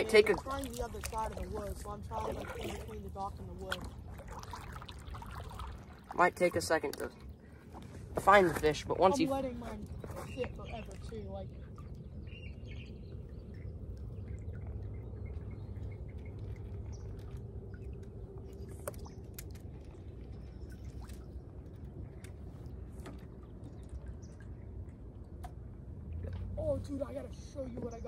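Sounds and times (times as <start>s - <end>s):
low wind rumble: 0.0s - 28.0s
water lapping and dripping: 0.0s - 28.0s.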